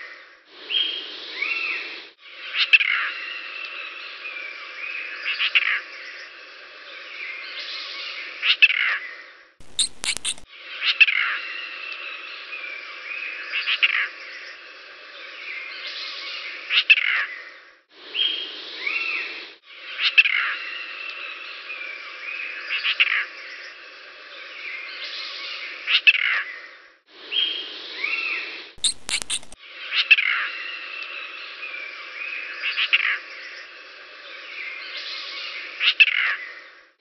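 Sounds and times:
birds chirping: 9.6 - 10.4, 28.8 - 29.6
sharp clicks: 9.6 - 10.4, 28.8 - 29.6.

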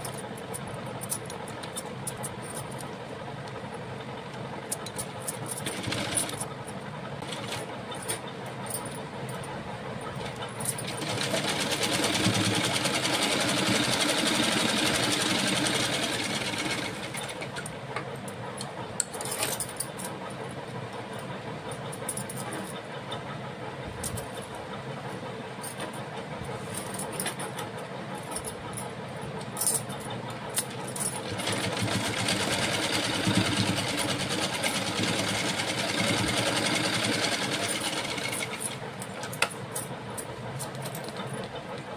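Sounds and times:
sewing machine stitching: 5.6 - 6.4, 10.9 - 17.6, 31.2 - 38.7
steady background noise: 16.2 - 41.9.

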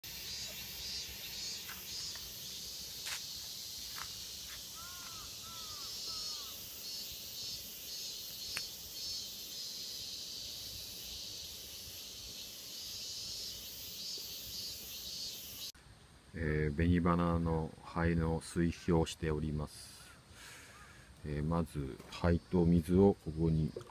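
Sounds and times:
insects trilling: 0.0 - 15.8, 20.3 - 23.9
bird calls: 0.1 - 9.8.

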